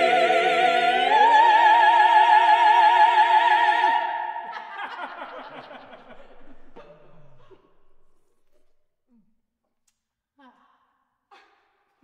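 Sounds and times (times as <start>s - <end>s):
vocal quartet singing chord: 0.0s - 4.5s
soft laughter and chuckling: 4.5s - 8.1s.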